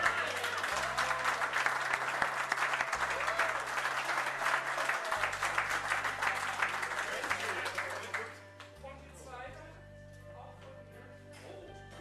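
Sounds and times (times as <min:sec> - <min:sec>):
crowd applauding: 0:00.0 - 0:08.8
music playing: 0:00.0 - 0:12.0.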